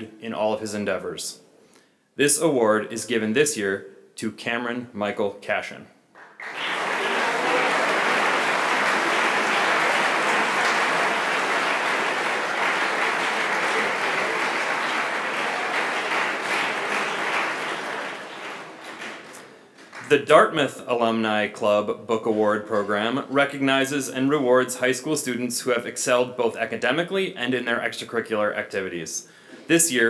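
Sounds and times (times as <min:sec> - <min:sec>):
audience applauding: 0:06.2 - 0:20.2.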